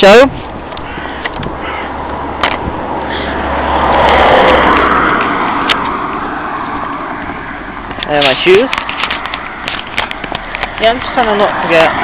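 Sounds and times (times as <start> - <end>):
car driving past: 1.6 - 7.8.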